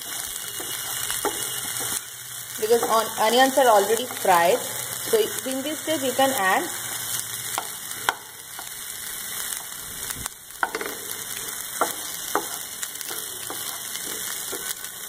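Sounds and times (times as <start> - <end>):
vegetables sizzling in oil: 0.0 - 15.0
wooden spatula scraping pan: 10.6 - 14.9.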